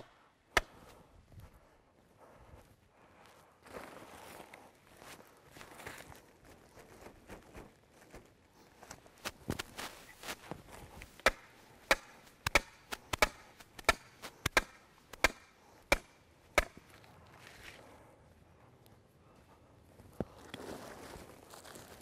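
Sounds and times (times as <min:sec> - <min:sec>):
hammer knocking wooden stake: 0:11.2 - 0:16.8.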